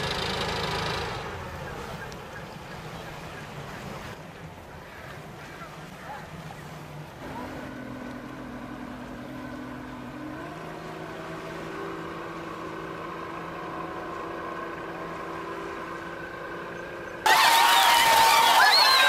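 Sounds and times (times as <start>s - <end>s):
outboard motor running: 0.0s - 19.0s
crowd voices: 17.3s - 19.0s.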